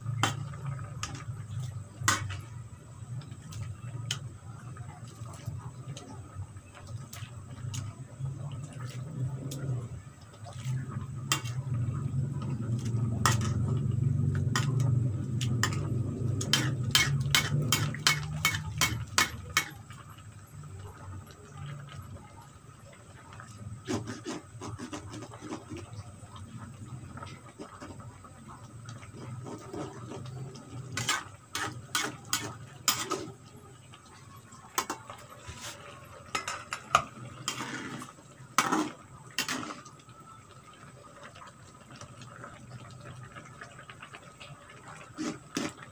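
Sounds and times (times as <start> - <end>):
metal ladle scraping pan: 0.0 - 2.5, 10.5 - 11.7, 12.8 - 13.7, 14.4 - 19.8, 29.2 - 33.4, 34.8 - 39.9
low rumble: 8.3 - 18.0.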